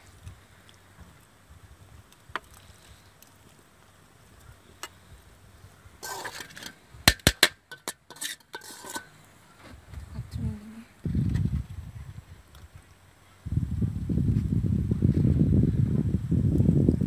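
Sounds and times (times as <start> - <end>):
spoon scraping steel bowl: 6.0 - 6.8, 7.7 - 9.2.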